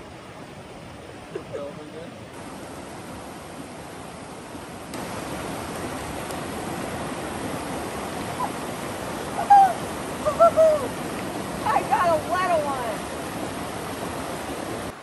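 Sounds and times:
creek rushing over boulders: 0.0 - 15.0
high-pitched cries: 9.4 - 10.9.

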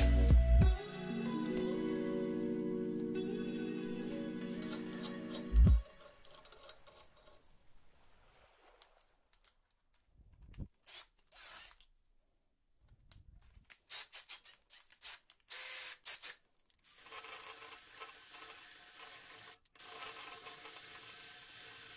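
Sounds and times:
drill chuck clicking and rattling: 10.8 - 11.8, 13.7 - 21.8
cordless drill running: 10.9 - 11.8, 15.0 - 16.3, 16.9 - 21.9.

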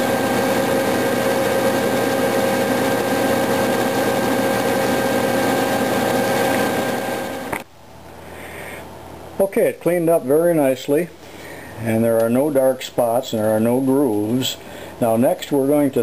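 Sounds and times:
metal lathe whine: 0.0 - 7.6.

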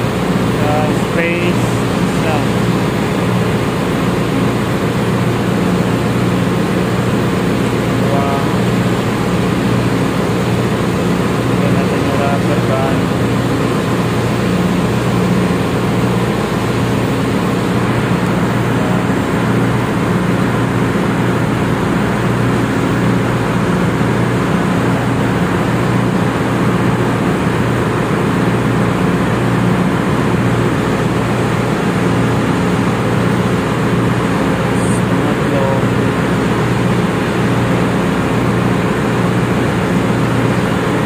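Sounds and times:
engine room machinery drone: 0.0 - 41.0.

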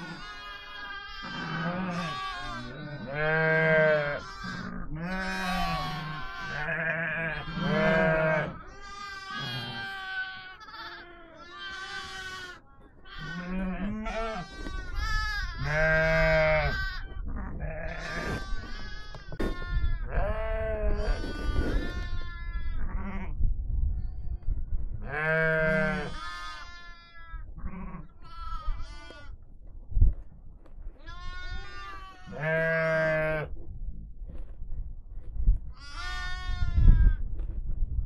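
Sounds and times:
sheep and goats bleating: 0.0 - 23.4, 25.0 - 29.4, 31.0 - 33.6, 35.7 - 37.5.

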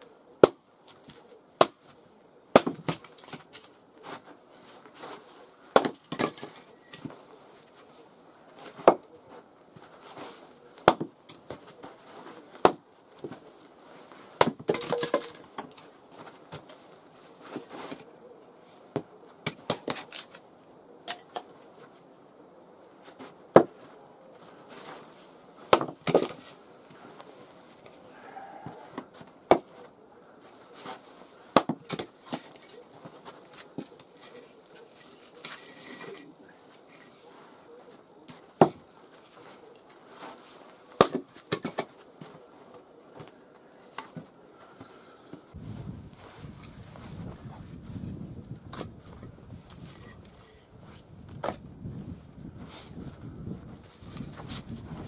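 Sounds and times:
axe chopping firewood: 0.4 - 3.7, 5.7 - 7.2, 8.6 - 9.1, 10.8 - 11.8, 12.6 - 13.4, 14.4 - 16.7, 18.9 - 20.4, 23.5 - 23.9, 25.7 - 26.5, 28.8 - 29.8, 31.5 - 36.2, 38.3 - 38.9, 41.0 - 42.0, 51.4 - 51.6.

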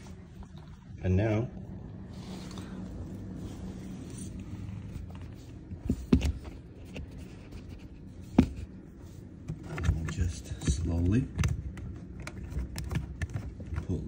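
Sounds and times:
low steady hum: 0.0 - 14.0
handling clicks and knocks: 9.4 - 14.0.

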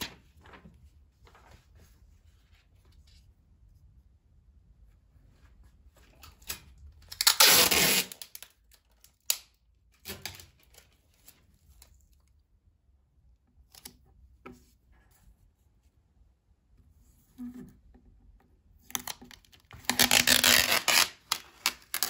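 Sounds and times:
paper pages rustling: 0.0 - 3.5.

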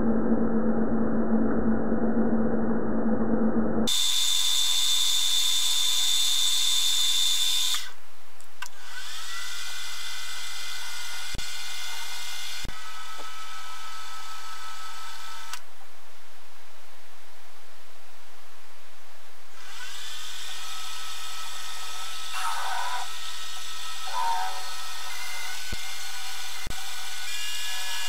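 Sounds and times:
milling machine spindle whining: 19.6 - 28.0.

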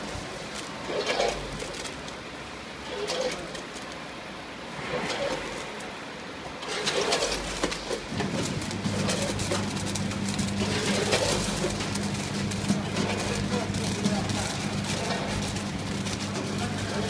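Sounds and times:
sweets rattling through hoppers: 0.0 - 4.2, 6.6 - 17.0
low machine hum: 4.4 - 17.0.

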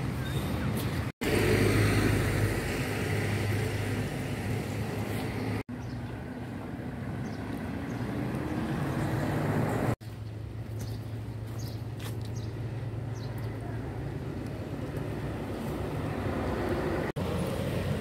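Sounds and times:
vehicle engine hum: 0.0 - 18.0.

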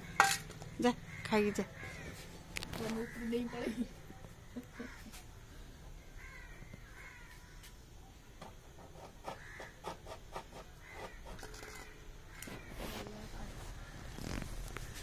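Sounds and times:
crows cawing: 0.0 - 3.9, 4.6 - 5.2, 6.1 - 7.8, 9.2 - 9.9, 10.8 - 12.8.

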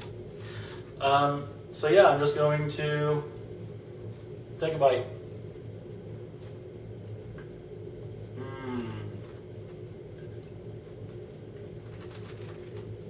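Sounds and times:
steady low hum: 0.0 - 13.0
closed-mouth mmm of enjoyment: 8.4 - 9.4.

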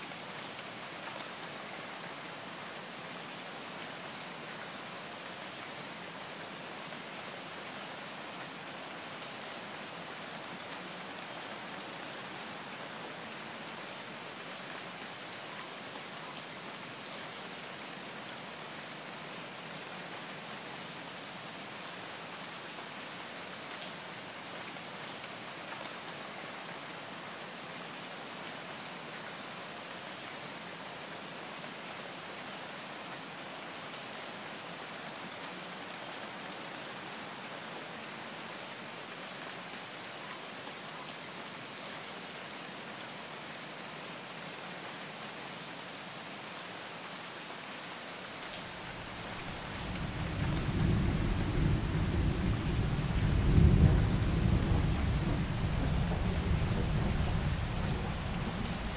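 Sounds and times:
steady rain falling: 0.0 - 58.9
deep roll of thunder: 49.4 - 58.9.

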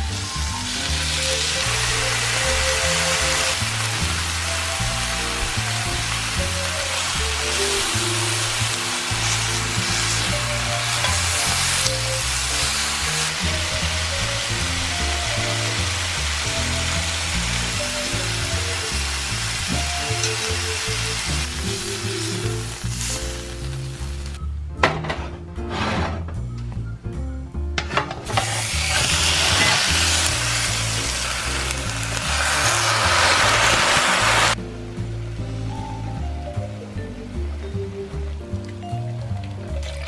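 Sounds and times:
meat sizzling in oil: 0.0 - 24.4, 28.3 - 34.6
background music with bass line: 0.0 - 40.0.

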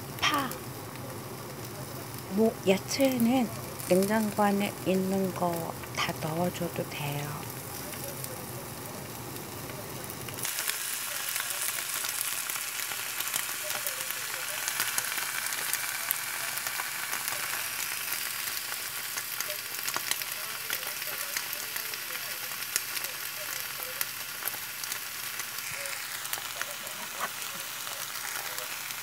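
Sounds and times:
food sizzling in a frying pan: 0.0 - 29.0
oil popping and crackling: 0.0 - 29.0.

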